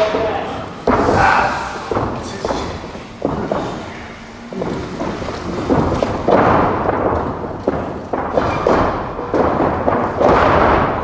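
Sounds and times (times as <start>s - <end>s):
wrestling ring rumbling and thudding: 0.0s - 11.0s
body slamming onto mat: 4.5s - 11.0s.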